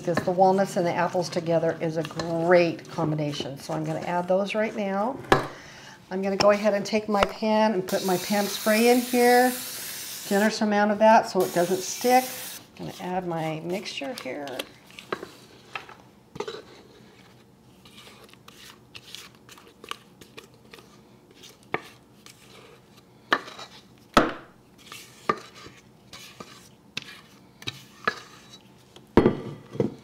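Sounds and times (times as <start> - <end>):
spatula scraping bowl: 0.0 - 5.0, 11.5 - 15.4, 16.4 - 23.9, 24.8 - 28.8.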